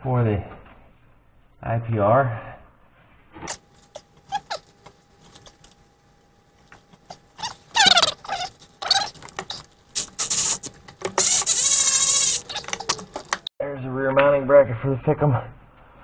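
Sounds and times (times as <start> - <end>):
metal parts squeaking and scraping: 3.8 - 5.6, 7.0 - 13.5.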